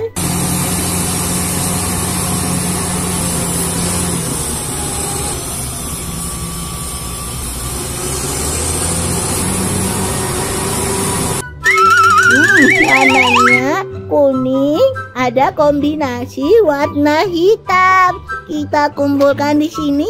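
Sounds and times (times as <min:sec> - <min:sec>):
bulldozer diesel engine running: 0:00.1 - 0:13.6.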